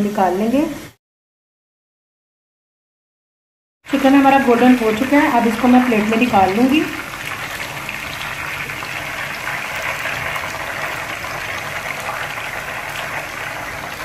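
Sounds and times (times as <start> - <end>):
chicken sizzling in hot oil: 3.9 - 14.0.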